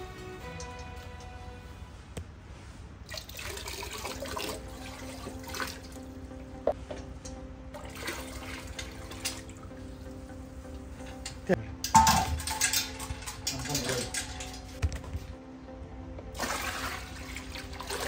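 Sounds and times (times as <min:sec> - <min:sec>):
liquid pouring and splashing: 0:03.0 - 0:06.1, 0:07.8 - 0:09.6, 0:12.0 - 0:14.8, 0:16.4 - 0:18.0.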